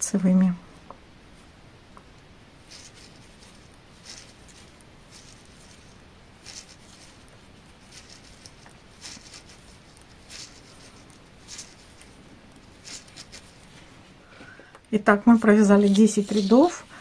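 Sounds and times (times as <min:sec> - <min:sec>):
knitting needles scraping and ticking: 0:02.6 - 0:13.9, 0:15.0 - 0:17.0.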